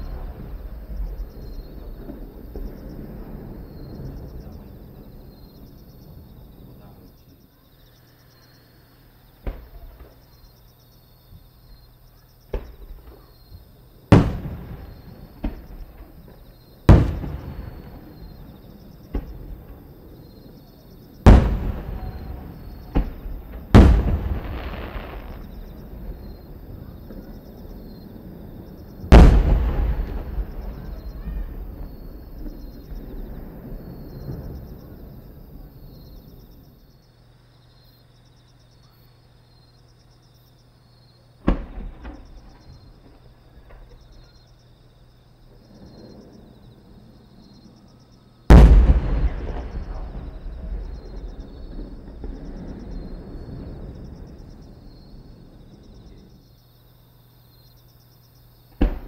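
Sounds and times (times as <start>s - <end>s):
firework shells bursting: 21.2s - 27.6s, 29.0s - 34.7s.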